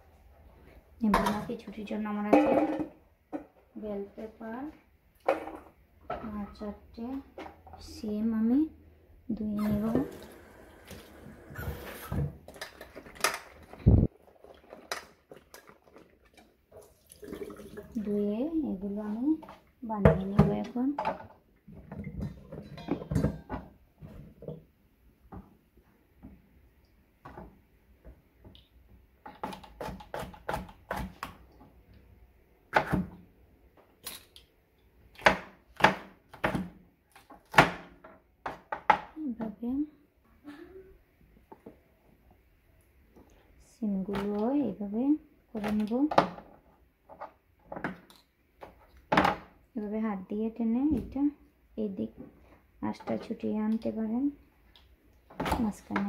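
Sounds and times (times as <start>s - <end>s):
knife chopping on plastic board: 29.3s - 31.4s.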